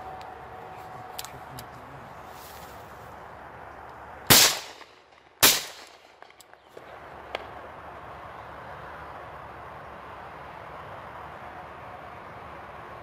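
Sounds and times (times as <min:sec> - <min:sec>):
shotgun shots: 0:04.3 - 0:06.4.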